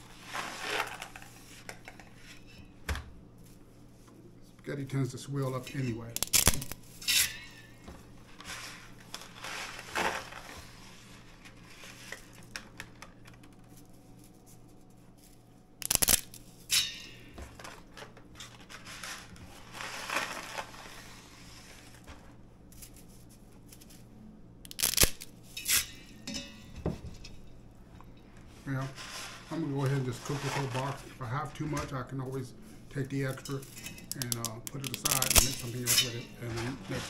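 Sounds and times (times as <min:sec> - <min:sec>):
spaghetti snapping: 0:06.2 - 0:06.8, 0:15.8 - 0:16.4, 0:24.6 - 0:25.3
dry spaghetti crackling: 0:18.3 - 0:22.0, 0:33.3 - 0:37.0.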